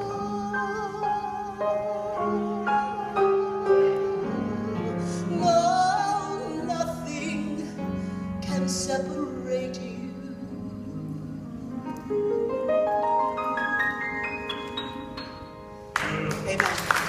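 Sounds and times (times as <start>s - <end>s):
woman singing with vibrato: 0.0s - 12.1s
keyboard sustained chords: 0.0s - 17.0s.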